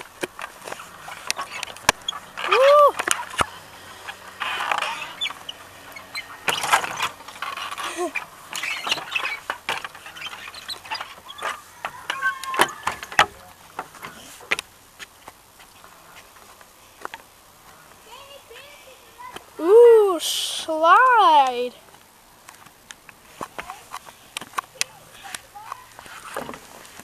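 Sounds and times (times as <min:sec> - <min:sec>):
wooden planks knocking and scraping: 0:06.4 - 0:15.4, 0:26.0 - 0:27.0.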